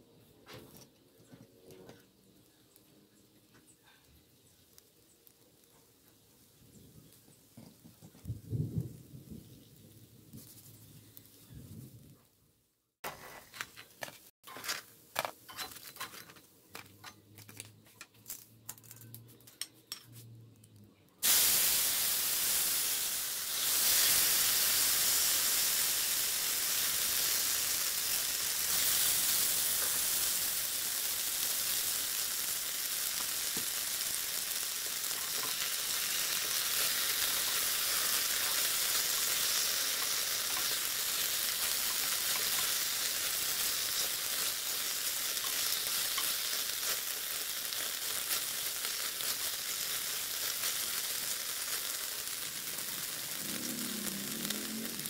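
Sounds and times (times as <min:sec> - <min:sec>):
chicken sizzling in hot oil: 0:21.2 - 0:55.0.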